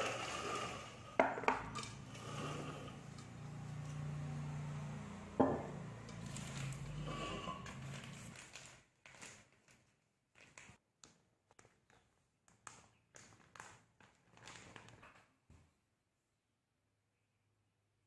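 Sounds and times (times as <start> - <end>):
plastic bag crinkling: 7.8 - 10.8, 13.4 - 15.2.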